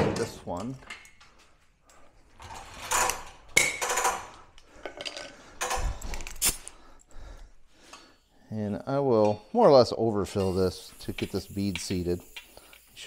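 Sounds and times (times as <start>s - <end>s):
metal tools clinking and scraping: 2.4s - 6.7s, 8.9s - 13.0s.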